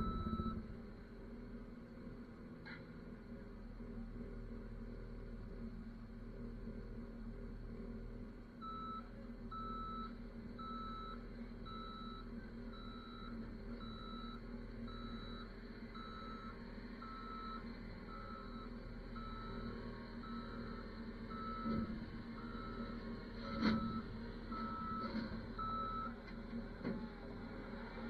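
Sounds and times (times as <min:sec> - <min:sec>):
reverse alarm beeping: 0:00.0 - 0:00.6, 0:08.6 - 0:21.8
diesel engine running: 0:00.0 - 0:28.0.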